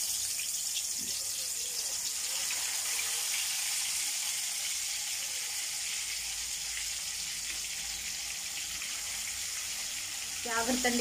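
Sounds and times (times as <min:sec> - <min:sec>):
fish frying in hot oil: 0:00.0 - 0:11.0.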